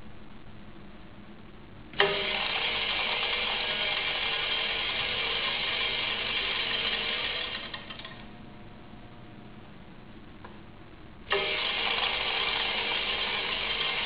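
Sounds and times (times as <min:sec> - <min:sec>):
machine starting clack: 0:02.0 - 0:08.2, 0:11.3 - 0:14.0.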